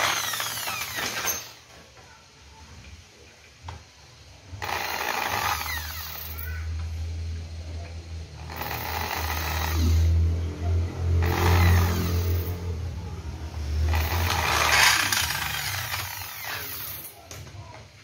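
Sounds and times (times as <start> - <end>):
drill bit cutting metal: 0.0 - 1.6
electric drill motor humming: 0.0 - 1.6, 4.6 - 6.3, 8.4 - 10.1, 11.2 - 12.5, 13.9 - 17.1.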